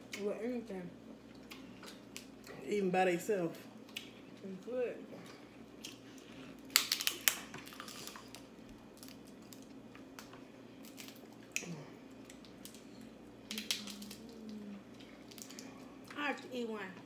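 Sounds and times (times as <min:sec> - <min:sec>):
crab shells cracking: 0:05.8 - 0:15.7.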